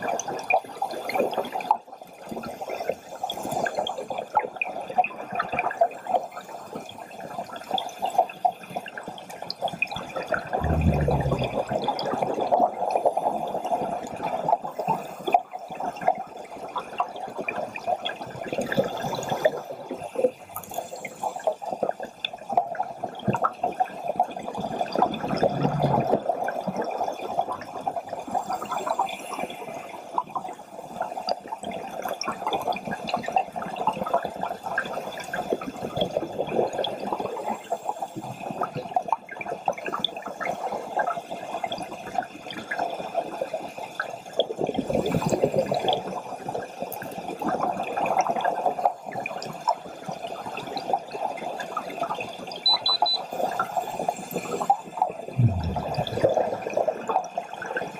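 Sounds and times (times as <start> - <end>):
exhaled bubbles surging: 10.5 - 12.3, 24.9 - 27.1, 55.3 - 57.8
scuba regulator breathing underwater: 10.6 - 11.8, 25.2 - 26.3, 55.4 - 56.9.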